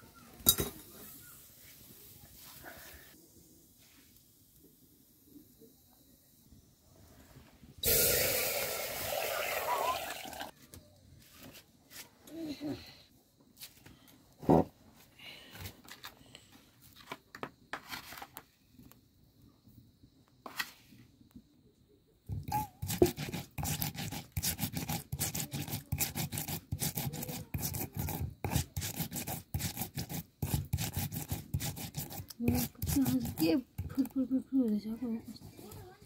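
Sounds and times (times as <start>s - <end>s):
grinding stone scraping seeds: 22.8s - 34.2s.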